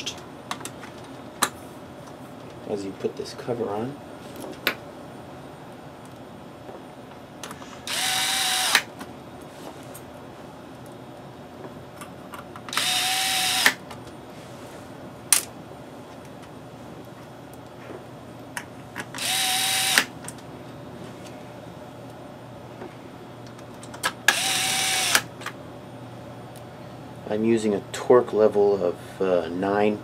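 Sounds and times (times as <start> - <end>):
drill clutch click: 7.9 - 8.9, 12.7 - 13.8, 19.2 - 20.1, 24.3 - 25.3
drill motor whine: 7.9 - 8.9, 12.7 - 13.8, 19.2 - 20.1, 24.3 - 25.3.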